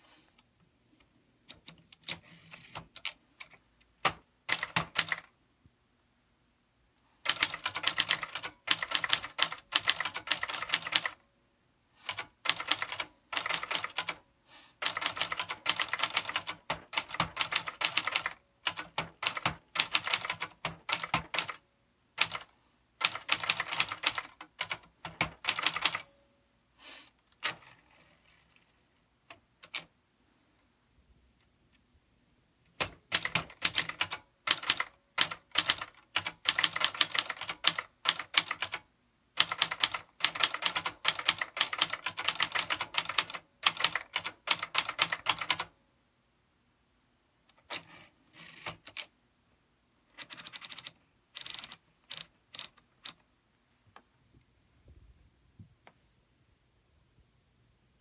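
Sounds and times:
typewriter typing: 1.5 - 5.3, 7.2 - 11.2, 12.0 - 14.2, 14.8 - 21.6, 22.2 - 26.2, 27.3 - 28.7, 29.3 - 29.9, 32.8 - 38.8, 39.4 - 45.7, 47.6 - 49.1, 50.2 - 53.2
typewriter bell ring: 4.5 - 5.3, 7.3 - 11.4, 14.8 - 26.6, 36.5 - 38.8, 39.4 - 45.7.

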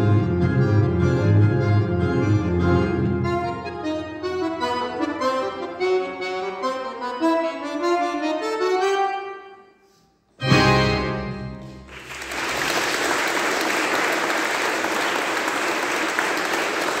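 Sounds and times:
accordion: 0.0 - 11.9
audience applauding: 11.8 - 17.0.

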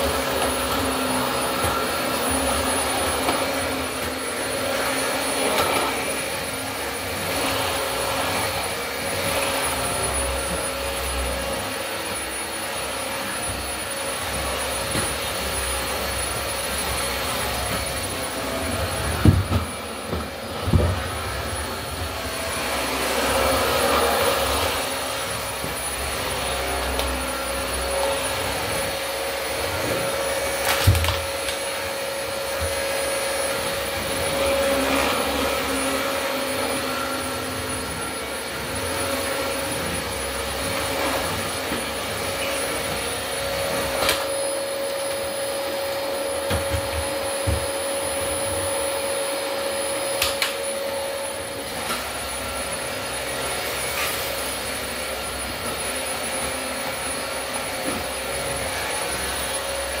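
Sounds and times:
vacuum cleaner motor whining: 0.0 - 60.0
vacuum cleaner knocking on wood floor: 19.0 - 21.1, 46.4 - 48.6.

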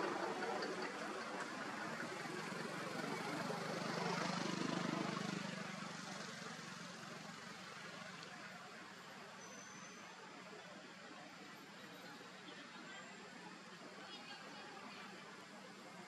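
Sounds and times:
vehicle engine passing: 0.0 - 8.2
road noise: 0.0 - 16.0.

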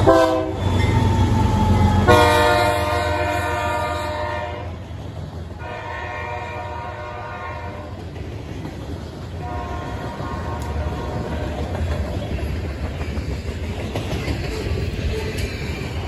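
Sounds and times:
locomotive horn blasts: 0.0 - 1.1, 1.7 - 4.8, 5.6 - 8.0, 9.4 - 11.7
freight train rumbling past: 0.0 - 16.0.

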